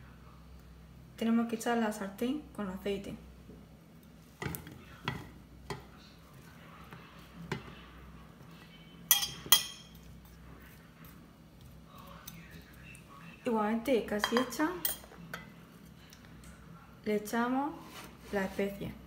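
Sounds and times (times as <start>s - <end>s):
metal clinking on crockery: 9.1s - 10.0s.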